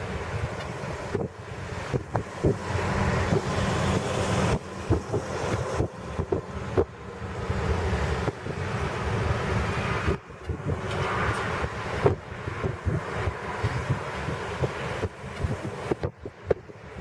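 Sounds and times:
jet engines rushing: 0.0 - 17.0
wind buffeting the microphone: 0.0 - 17.0.

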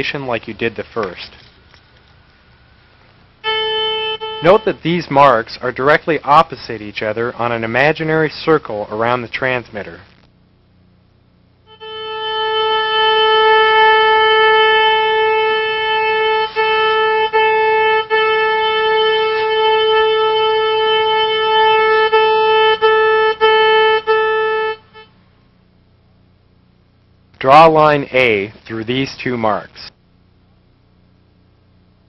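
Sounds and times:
steady electronic signal tone: 2.7 - 6.6, 11.4 - 25.3.

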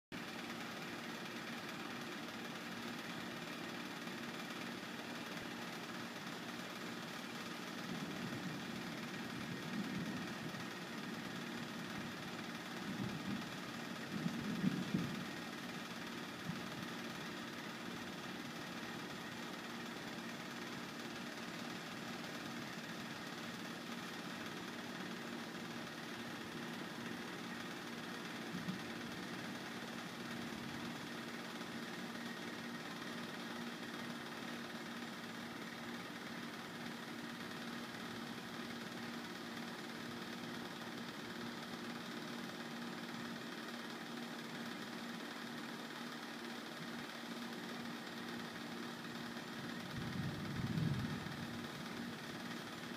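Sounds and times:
low mechanical hum: 0.2 - 52.9
low hum: 49.9 - 52.0.

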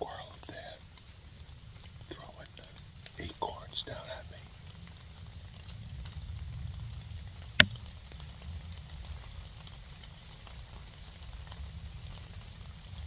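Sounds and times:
faint light patter: 0.0 - 13.0
sharp click: 7.6 - 7.8.

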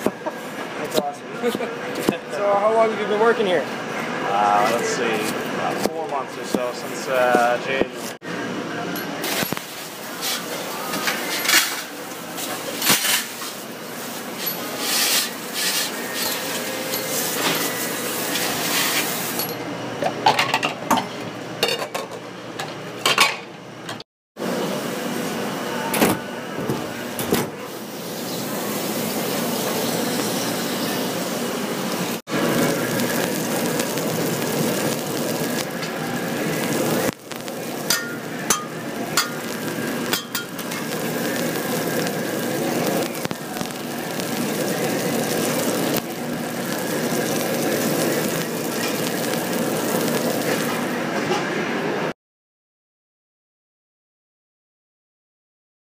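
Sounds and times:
patty sizzling on griddle: 9.2 - 19.4, 27.7 - 51.2.

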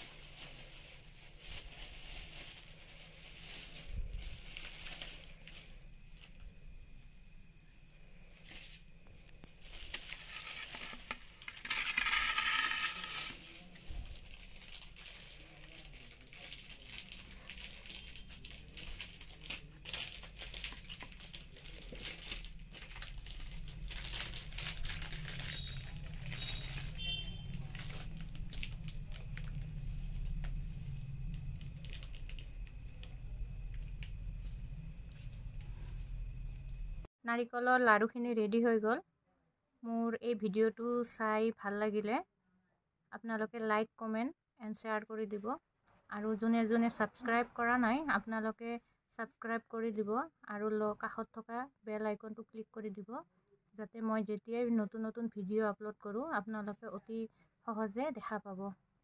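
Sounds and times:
coconut crumbling rustle: 0.0 - 5.8, 9.5 - 37.1.

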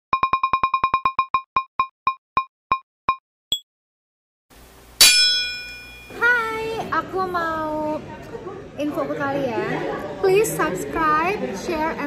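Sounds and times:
higher ping: 5.0 - 6.5.

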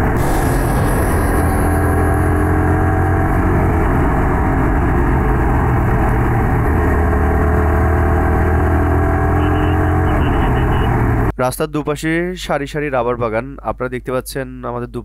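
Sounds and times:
motorcycle engine running: 0.0 - 11.3.

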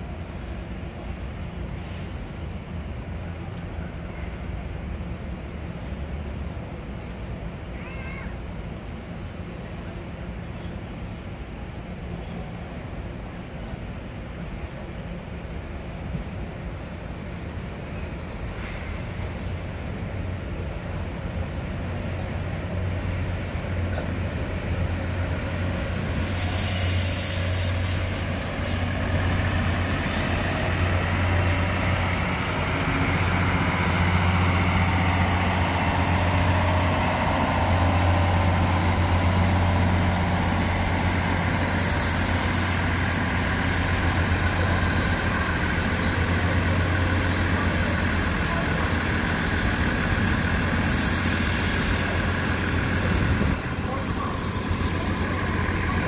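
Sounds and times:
diesel train engine drone: 0.0 - 56.0
air hiss bursts: 26.2 - 28.9, 41.7 - 43.8, 50.8 - 52.0.

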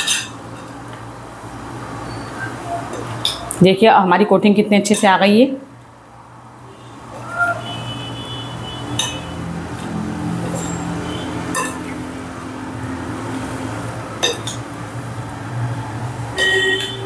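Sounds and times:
metal spoon clinking glass bowl: 9.0 - 9.3, 11.5 - 12.0, 14.2 - 14.6.

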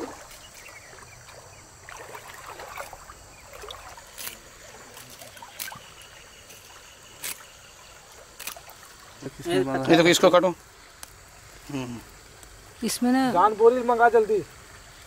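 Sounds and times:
soft background hiss: 0.0 - 15.0
net snipping: 4.1 - 5.8.

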